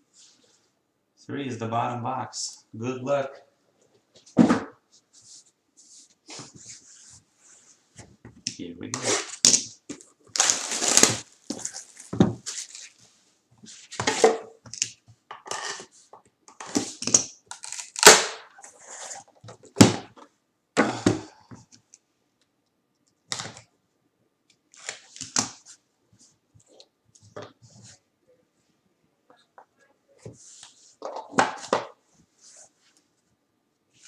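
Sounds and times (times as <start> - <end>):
plastic wrap crinkling and tearing: 10.3 - 13.0, 17.2 - 18.5.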